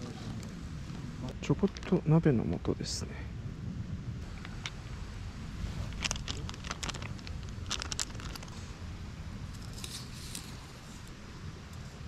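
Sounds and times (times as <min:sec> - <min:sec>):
steady low rumble: 0:00.0 - 0:12.0
foil pouch crinkling: 0:05.8 - 0:08.6.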